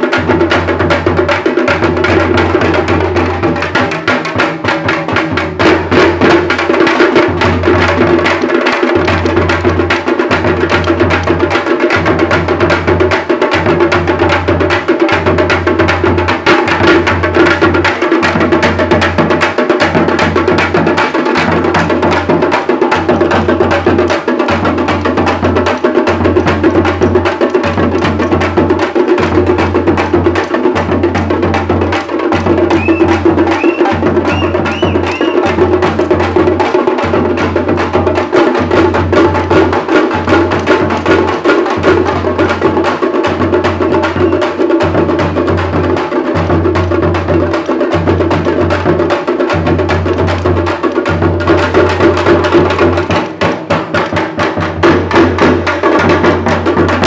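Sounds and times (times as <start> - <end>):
frame drums beaten with sticks: 0.0 - 57.0
short high chirps: 32.8 - 35.4.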